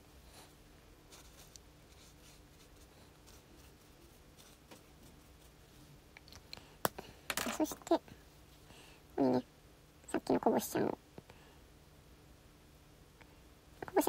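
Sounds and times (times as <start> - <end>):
low steady hum: 0.0 - 14.0
brush pen scratching on paper: 1.1 - 5.6.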